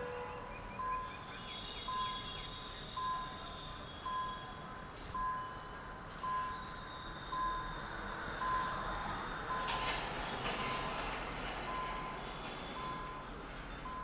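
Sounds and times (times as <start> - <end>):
car passing by: 7.2 - 13.7.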